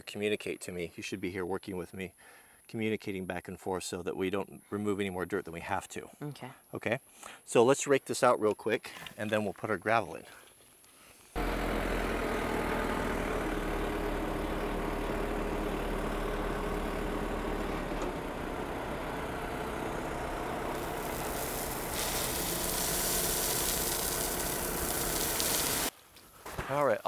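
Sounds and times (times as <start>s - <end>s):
tractor diesel engine running: 11.4s - 25.9s
gravel pouring hiss: 20.6s - 25.9s.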